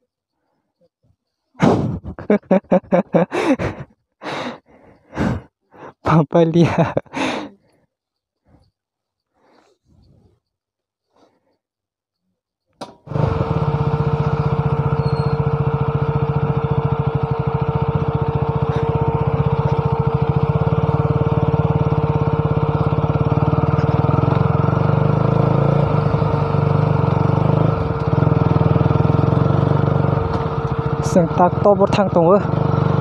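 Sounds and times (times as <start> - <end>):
motorcycle engine running: 1.6 - 3.8, 12.9 - 33.0.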